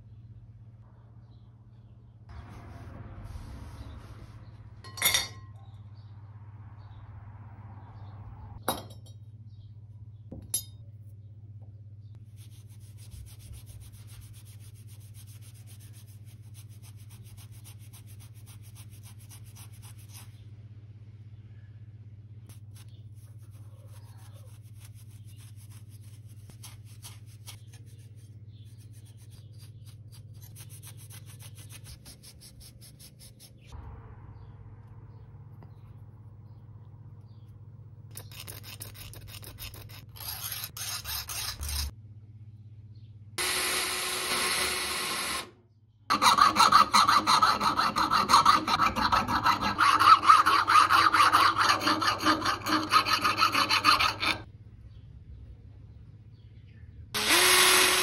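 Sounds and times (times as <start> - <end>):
abrasive pad rasping on metal: 46.1 - 54.5.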